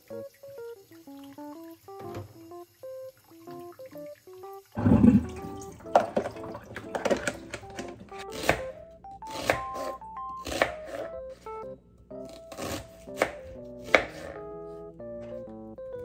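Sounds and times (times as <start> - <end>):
tap water running into sink: 0.0 - 8.6
knife chopping on plastic board: 5.9 - 11.1, 12.2 - 14.4.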